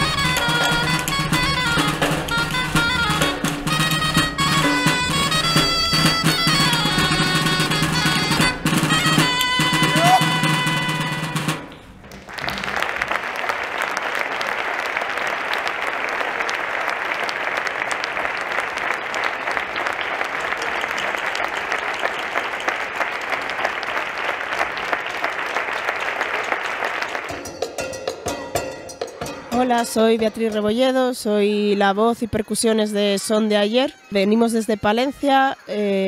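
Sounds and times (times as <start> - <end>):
audience applauding: 0.0 - 27.9.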